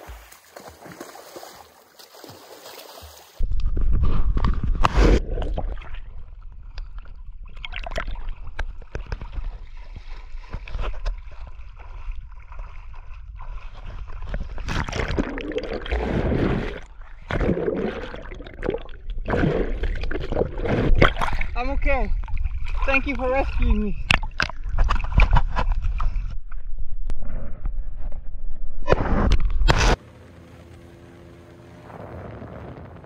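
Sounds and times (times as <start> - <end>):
water splashes: 0.0 - 3.4, 4.9 - 26.2
water sloshing and gurgling: 0.0 - 28.2
steady low rumble: 30.1 - 33.0.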